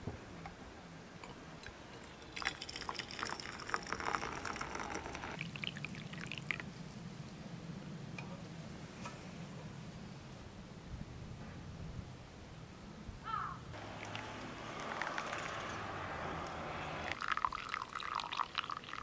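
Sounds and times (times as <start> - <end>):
water splashing into metal mug: 2.0 - 5.4.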